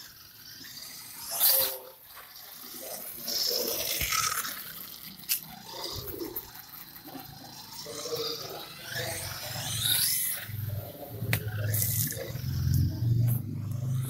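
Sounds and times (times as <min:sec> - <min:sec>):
electric motor and gears whining: 0:00.0 - 0:14.0
tyres rolling on paving: 0:00.0 - 0:14.0.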